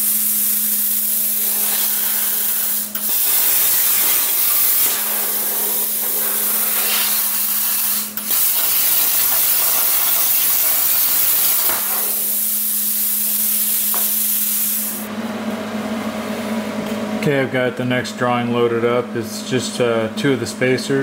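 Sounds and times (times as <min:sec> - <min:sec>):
plasma torch hissing: 0:00.0 - 0:15.1.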